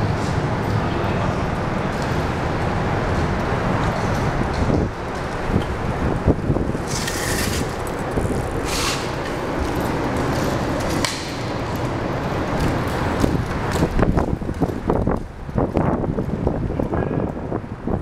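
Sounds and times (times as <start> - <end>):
traffic rumble on bridge: 0.0 - 18.0
wind on microphone: 3.8 - 9.8, 11.3 - 18.0.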